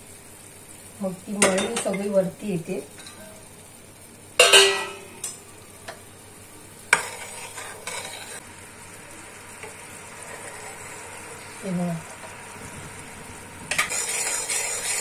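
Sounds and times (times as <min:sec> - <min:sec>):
bubbling syrup hissing: 0:00.0 - 0:15.0
ladle knocking metal pan: 0:04.4 - 0:05.0.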